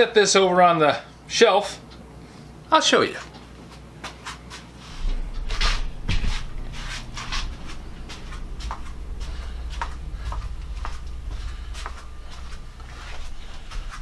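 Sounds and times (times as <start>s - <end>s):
soft footsteps and scuffs: 3.2s - 7.4s.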